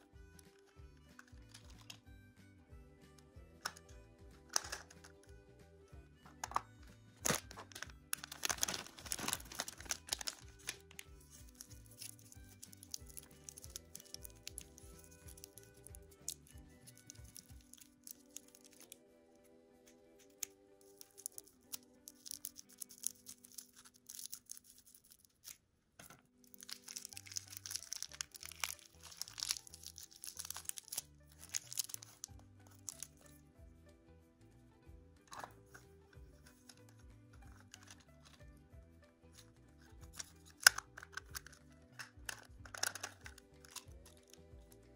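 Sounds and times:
light background music: 0:00.0 - 0:44.9
plastic wrapper crinkling: 0:00.6 - 0:02.0, 0:07.2 - 0:19.0, 0:20.2 - 0:33.3, 0:36.5 - 0:38.4, 0:40.0 - 0:44.8.

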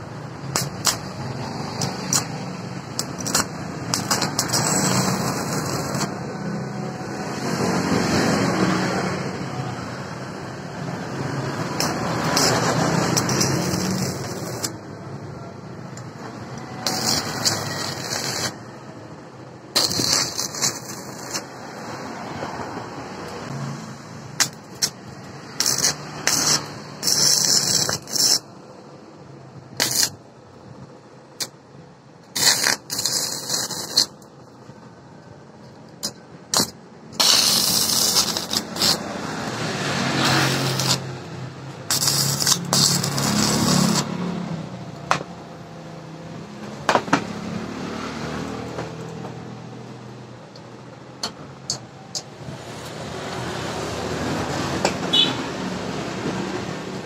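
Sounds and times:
welding arc crackling and sizzling: 0:00.2 - 0:06.2, 0:10.0 - 0:14.9, 0:16.0 - 0:18.7, 0:19.7 - 0:22.0, 0:24.2 - 0:28.5, 0:29.8 - 0:30.2, 0:32.2 - 0:34.3, 0:36.0 - 0:44.3.

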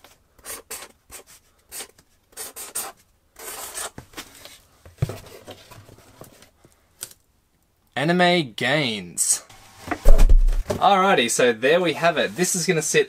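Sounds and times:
marker pen scratching on cardboard: 0:00.4 - 0:04.0.

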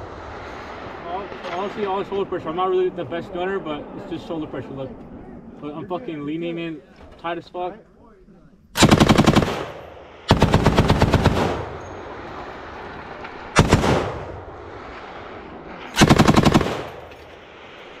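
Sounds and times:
machine gun automatic fire: 0:08.8 - 0:12.0, 0:12.8 - 0:14.4, 0:15.9 - 0:17.4
gunfire echo: 0:08.8 - 0:18.0.

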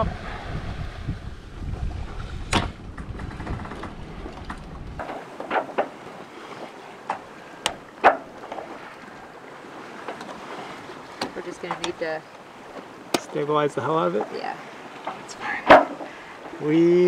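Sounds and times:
wind rumble on microphone: 0:00.0 - 0:06.4.

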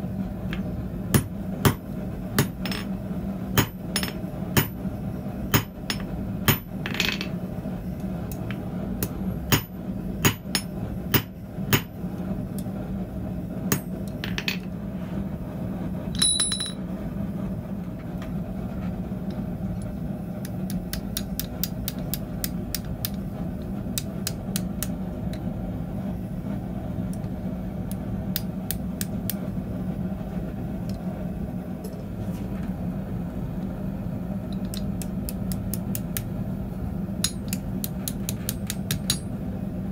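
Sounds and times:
low hum: 0:00.0 - 0:39.9
hammer striking steel on anvil: 0:01.1 - 0:01.8, 0:03.6 - 0:04.8, 0:05.5 - 0:06.8, 0:09.0 - 0:12.0, 0:13.7 - 0:14.1, 0:37.2 - 0:39.3.

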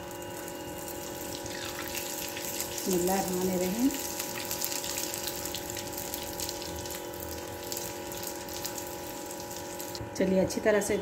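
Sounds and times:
deep-frying sizzle and crackling: 0:00.0 - 0:10.6.

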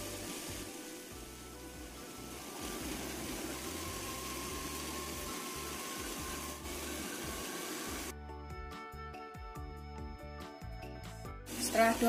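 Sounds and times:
water boiling hard in pot: 0:00.0 - 0:08.1, 0:11.5 - 0:12.0.

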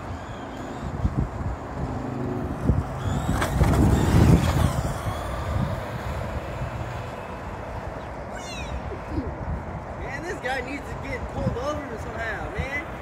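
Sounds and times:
road vehicle passing: 0:00.0 - 0:13.0.

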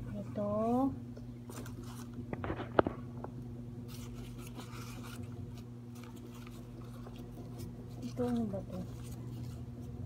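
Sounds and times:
low steady hum: 0:00.0 - 0:10.0
newspaper rustling and crinkling: 0:01.4 - 0:03.1, 0:03.9 - 0:10.0.

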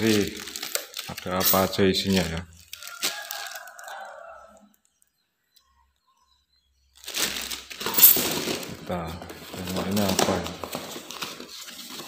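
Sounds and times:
plastic wrapping crinkling: 0:00.0 - 0:04.2, 0:07.0 - 0:12.0.

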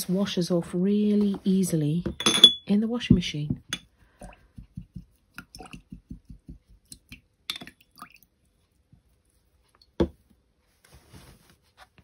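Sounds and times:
paintbrush knocking in glass jar: 0:04.5 - 0:06.8.

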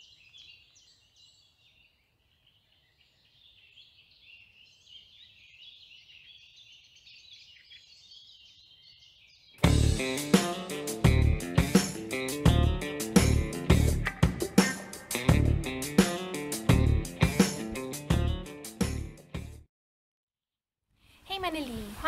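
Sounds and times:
songbirds chirping: 0:00.0 - 0:09.6
guitar music: 0:09.6 - 0:19.6.

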